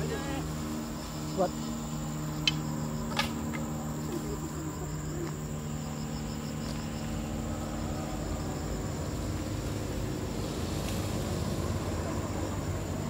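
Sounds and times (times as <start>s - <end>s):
faint pulsing chirp: 0.0s - 10.0s
insects droning: 0.0s - 13.0s
low steady hum: 0.0s - 13.0s.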